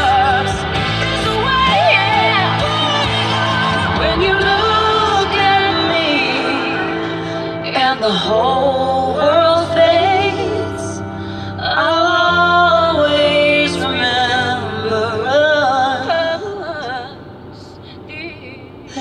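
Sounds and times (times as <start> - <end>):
sustained low chords: 0.0 - 11.2
pop ballad: 0.0 - 19.0.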